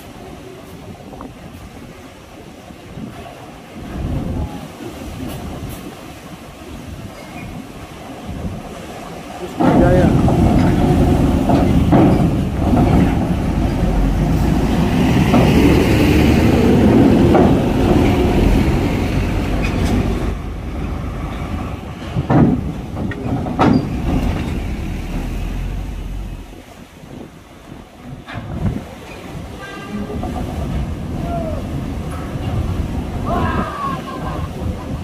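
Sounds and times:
diesel engine and tyre rumble: 9.8s - 28.7s.

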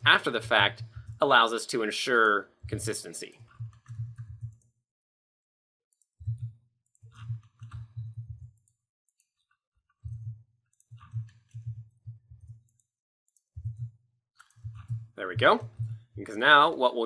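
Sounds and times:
keyboard and mouse clicks: 2.7s - 4.6s, 6.2s - 9.4s, 10.0s - 11.8s, 12.4s - 16.0s.

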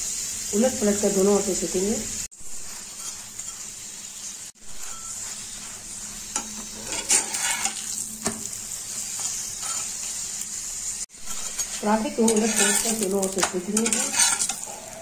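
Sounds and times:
ghee sizzling in a pan: 0.0s - 15.0s
metal spatula scraping pan: 2.6s - 3.8s, 4.6s - 10.1s, 11.1s - 15.0s.

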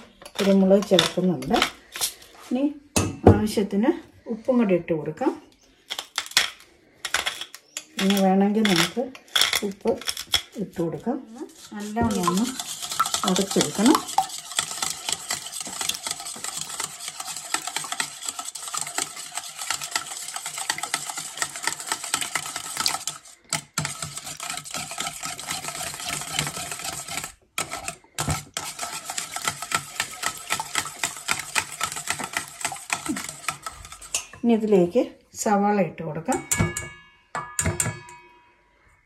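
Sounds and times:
whisk clicking against metal bowl: 11.5s - 34.4s.

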